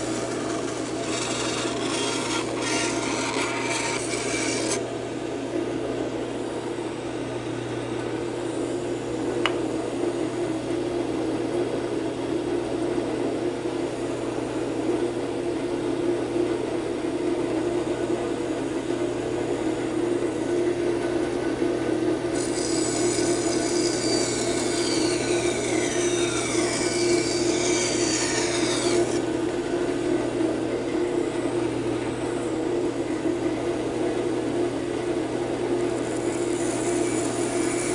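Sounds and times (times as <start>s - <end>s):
blade rasping through wood: 0.0s - 4.8s, 22.3s - 29.2s, 36.0s - 37.9s
high scraping with squeals: 0.0s - 4.8s
band saw motor hum: 0.0s - 11.2s, 18.5s - 37.9s.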